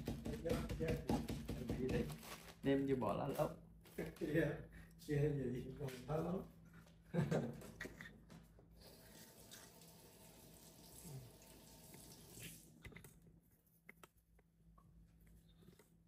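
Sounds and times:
running water hiss: 8.8s - 12.7s.

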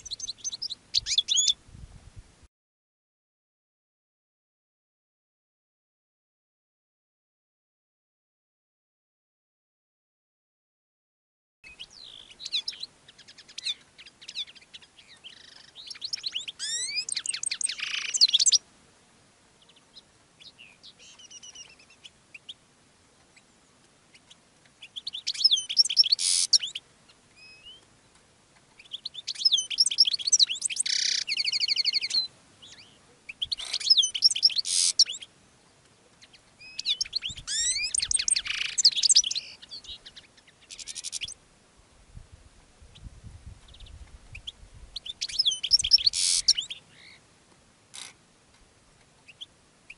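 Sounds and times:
finch twittering song: 0.0s - 1.6s, 11.7s - 18.6s, 19.6s - 22.6s, 23.3s - 41.4s, 42.9s - 47.2s.

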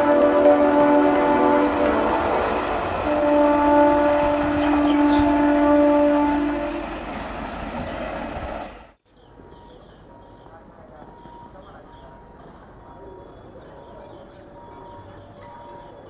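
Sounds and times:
locomotive horn blowing: 0.0s - 7.1s
train rumbling on track: 0.0s - 16.0s.

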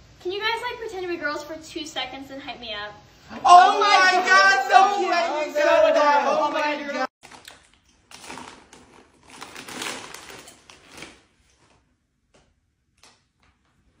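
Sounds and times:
plastic snack bag rustling: 7.2s - 11.8s.

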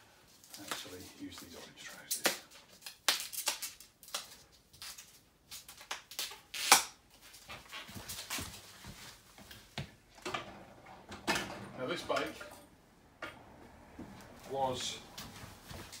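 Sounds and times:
footsteps: 7.2s - 10.0s, 13.6s - 16.0s.

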